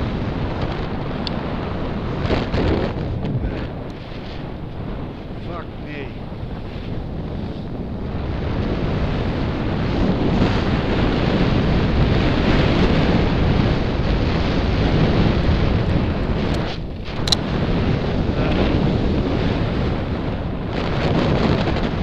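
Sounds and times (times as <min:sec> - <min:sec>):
skis running over snow: 0:00.0 - 0:05.2
wind rushing over microphone: 0:00.0 - 0:22.0
sharp click: 0:16.5 - 0:17.4.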